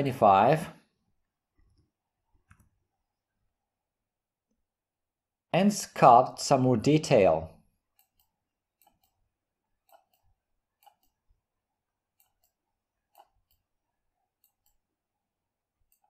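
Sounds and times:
computer mouse clicks: 1.6 - 2.8, 7.9 - 11.3, 12.1 - 13.7, 14.4 - 14.9, 15.8 - 16.0.

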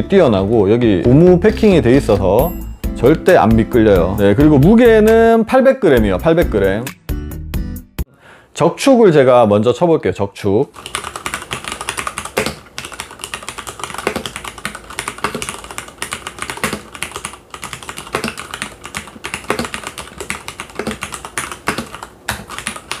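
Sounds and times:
mechanical keyboard typing: 10.7 - 23.0.

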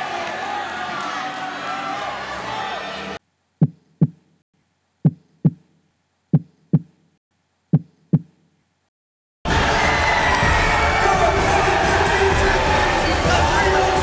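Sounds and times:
heartbeat thumps: 3.6 - 4.3, 5.0 - 5.7, 6.3 - 7.0, 7.7 - 8.4.

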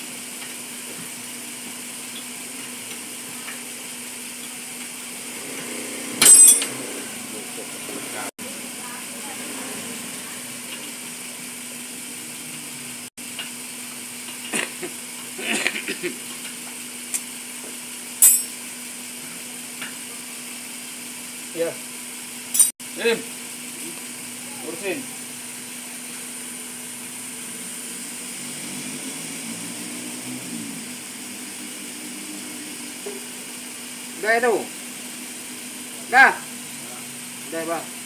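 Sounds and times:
metallic tool clink: 6.2 - 6.8, 18.2 - 18.5, 22.5 - 22.7.

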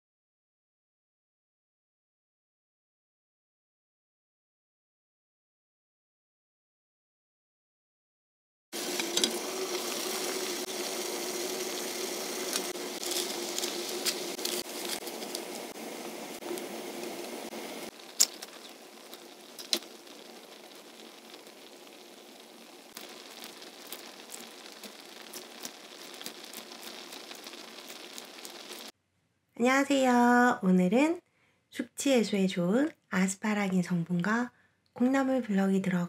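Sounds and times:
noodles simmering: 8.8 - 28.9
water boiling in a pot: 8.8 - 28.9
steady hum: 8.9 - 20.2.

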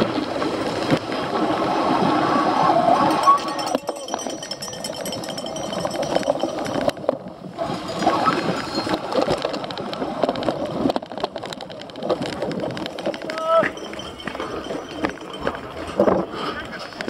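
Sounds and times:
bike rattling over rough ground: 2.9 - 17.0.

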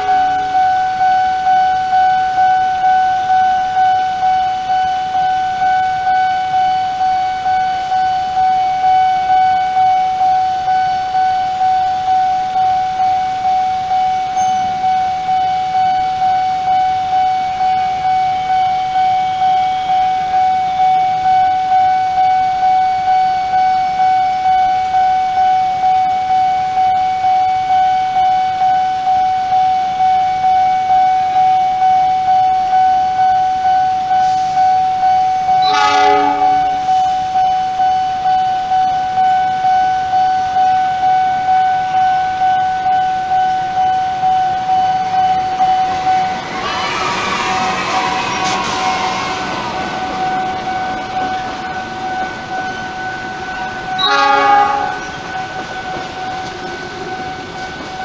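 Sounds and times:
train horn blast: 0.0 - 0.9, 35.5 - 37.3, 53.9 - 55.4
railway crossing alarm dinging: 0.0 - 58.0.

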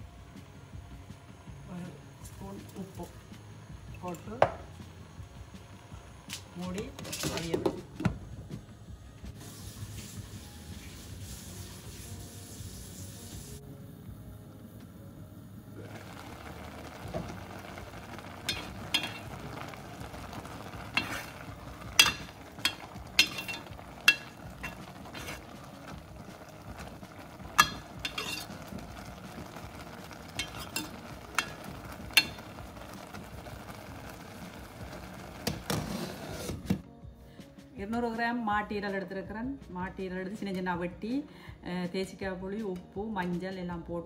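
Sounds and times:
low hiss of pan cooking: 0.0 - 36.8
ladle clinking against pot: 22.0 - 25.4, 27.5 - 28.6, 30.4 - 32.5.

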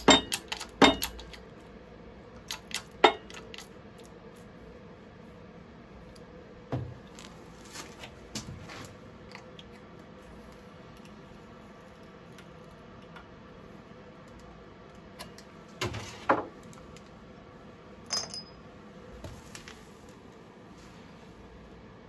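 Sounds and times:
sharp metal knocks: 0.0 - 1.2
ringing metal clink: 18.1 - 18.6.

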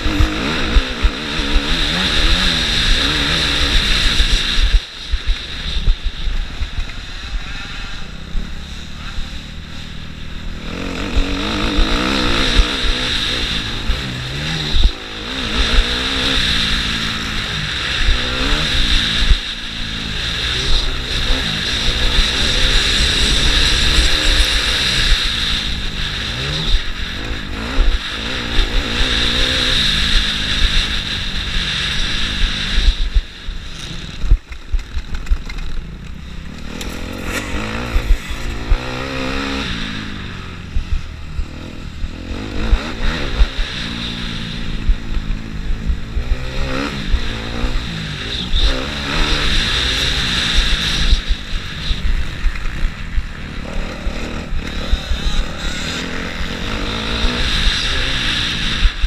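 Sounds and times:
motocross bike engine revving: 0.0 - 59.0.

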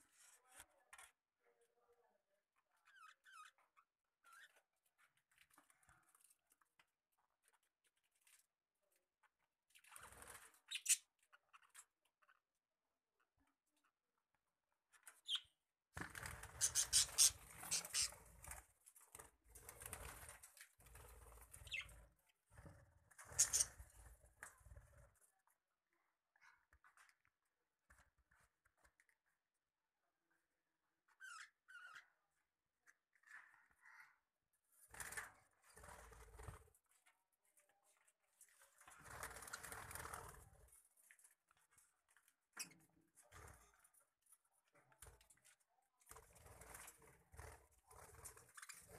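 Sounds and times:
birds fluttering wings: 9.8 - 11.0, 16.0 - 25.2, 34.9 - 37.1, 38.6 - 41.8, 46.0 - 48.9
budgerigars chattering: 16.6 - 18.1.

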